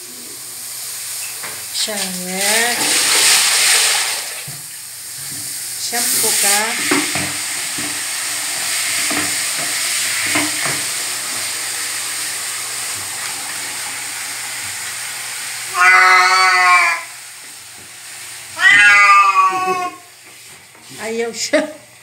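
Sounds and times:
shower water spraying: 0.0 - 22.0
cat meowing loudly: 15.7 - 17.2, 18.6 - 20.1.

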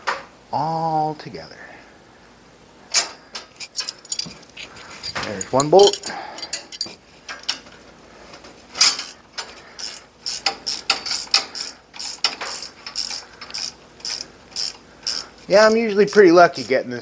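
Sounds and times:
ratchet wrench clicking: 8.8 - 16.8.

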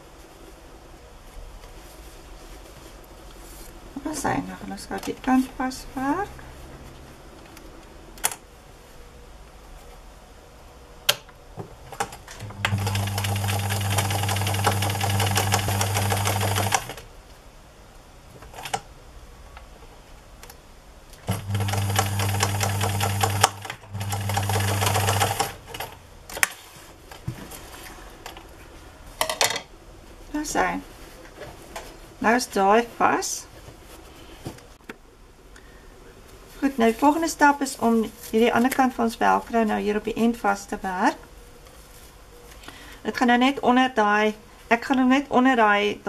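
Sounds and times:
sewing machine needle clatter: 12.0 - 17.0, 21.3 - 25.9
sewing machine motor humming: 12.4 - 17.0, 21.2 - 26.0.

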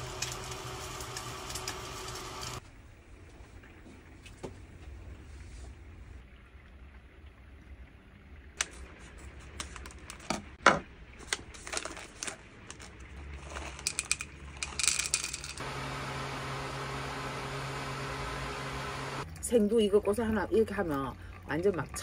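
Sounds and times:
coffee beans rattling: 11.2 - 15.6
steady hum: 15.6 - 19.2.

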